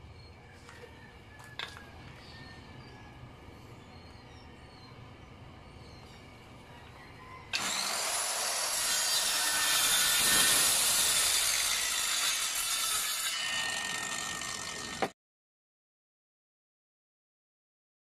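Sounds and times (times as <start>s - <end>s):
circular saw cutting plywood: 7.5s - 15.2s.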